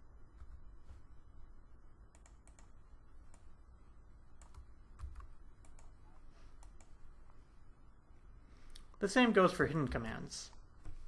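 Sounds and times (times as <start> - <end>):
computer keyboard keystrokes: 2.1 - 3.5, 4.4 - 6.0.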